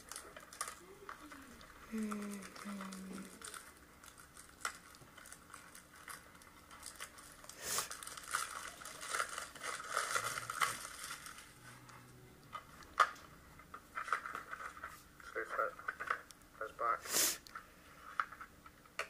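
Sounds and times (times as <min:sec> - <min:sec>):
plastic wrap crinkling and tearing: 0:00.0 - 0:11.9.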